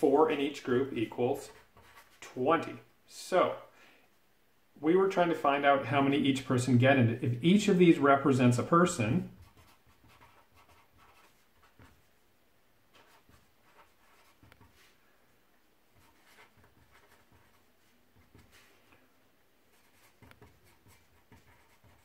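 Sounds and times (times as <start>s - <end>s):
marker scratching on paper: 1.0s - 2.4s, 9.3s - 12.1s, 12.9s - 15.0s, 15.9s - 18.7s, 19.7s - 22.0s.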